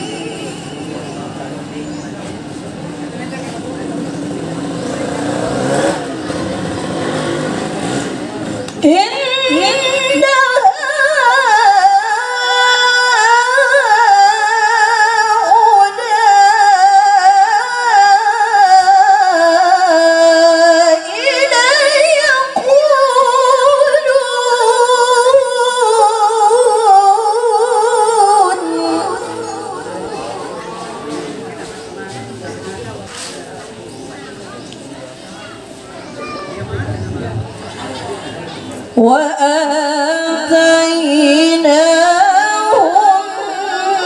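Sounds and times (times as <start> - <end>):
woman chanting melodically: 8.8 - 31.6, 39.0 - 44.0.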